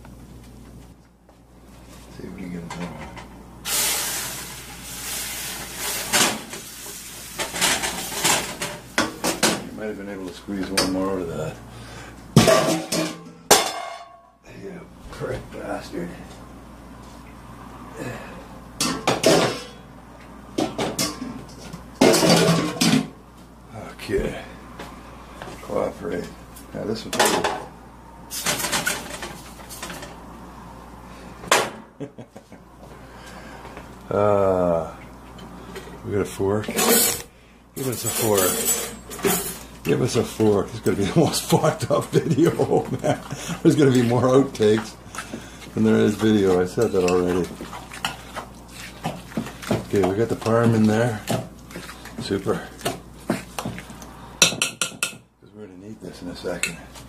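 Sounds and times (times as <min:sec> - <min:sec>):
liquid sizzling in hot skillet: 0:03.6 - 0:09.2.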